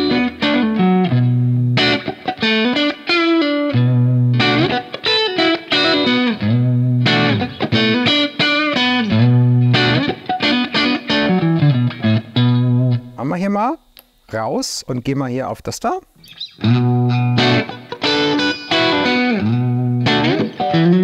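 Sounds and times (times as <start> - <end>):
electric guitar riff: 0.0 - 13.2, 16.2 - 21.0.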